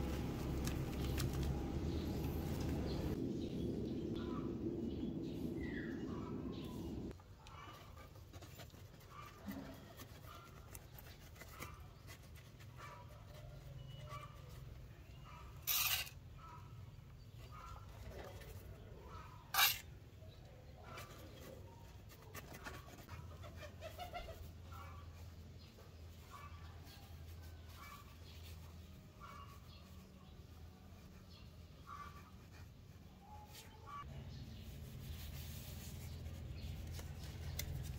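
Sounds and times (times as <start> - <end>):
low hum: 0.0 - 7.1.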